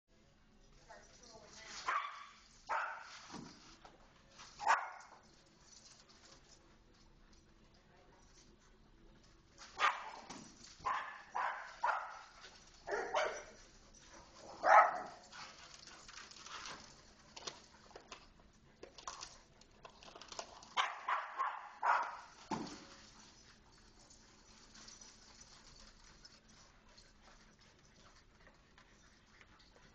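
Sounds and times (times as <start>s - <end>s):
dogs barking: 1.9s - 3.1s, 10.8s - 12.3s, 12.9s - 13.6s, 14.6s - 15.3s, 20.8s - 22.3s.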